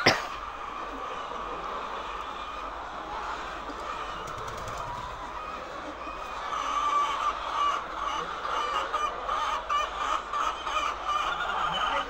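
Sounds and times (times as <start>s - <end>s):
hens clucking: 0.0s - 12.0s.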